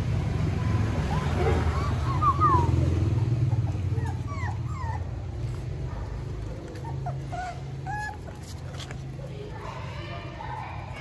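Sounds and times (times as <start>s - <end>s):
puppies whimpering and yipping: 0.7s - 5.4s, 6.4s - 9.2s.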